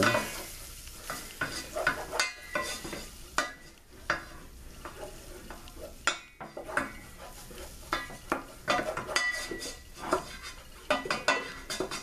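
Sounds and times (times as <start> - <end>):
wooden spoon scraping a pot: 0.0 - 12.0.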